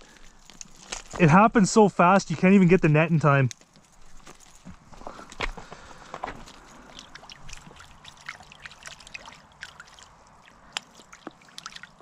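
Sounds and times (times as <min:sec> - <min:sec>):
water splashes and drips: 0:05.9 - 0:12.0.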